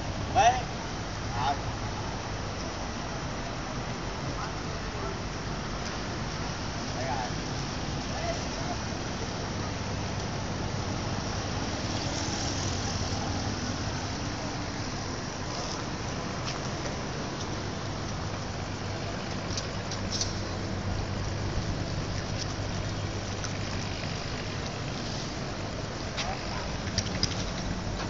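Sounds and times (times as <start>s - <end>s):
passing cars rushing: 6.0s - 17.9s.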